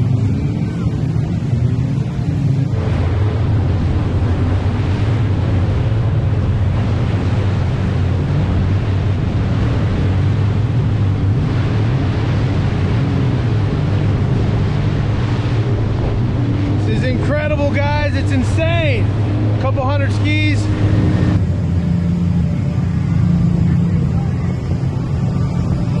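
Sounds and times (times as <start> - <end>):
jet ski engines droning: 0.0 - 26.0
water rushing and spraying: 0.0 - 26.0
wind buffeting microphone: 0.0 - 26.0.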